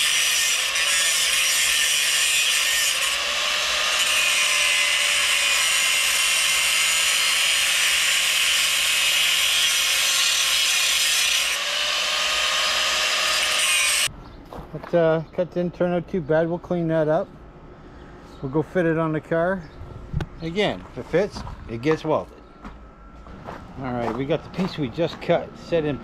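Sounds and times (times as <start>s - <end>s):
power tool cutting metal pipe: 0.0s - 14.1s
faint motor whine: 19.6s - 26.0s.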